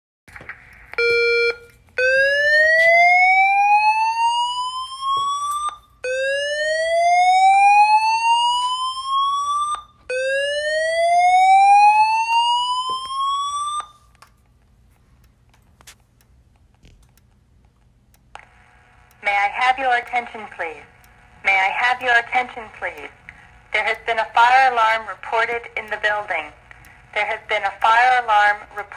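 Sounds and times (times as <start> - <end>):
rising whoop alarm tones: 1.0 - 14.0
fire alarm beep: 1.0 - 14.1.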